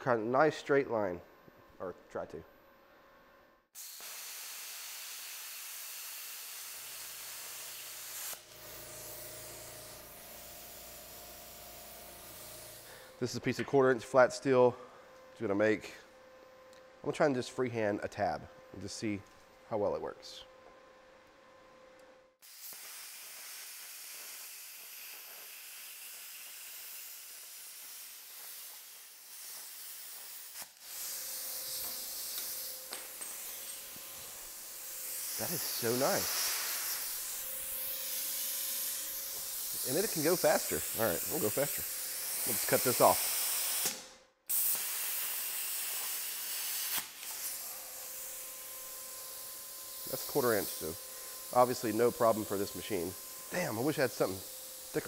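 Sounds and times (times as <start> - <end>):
torch air hissing: 3.8 - 13.3, 22.4 - 55.0
plasma cutter arc hissing: 3.8 - 13.4, 22.4 - 55.0.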